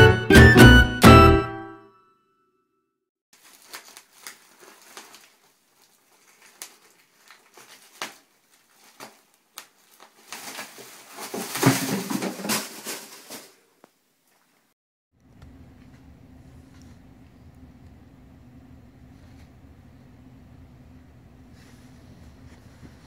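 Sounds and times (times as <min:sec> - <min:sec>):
plastic wrapping crinkling: 0:03.4 - 0:14.7.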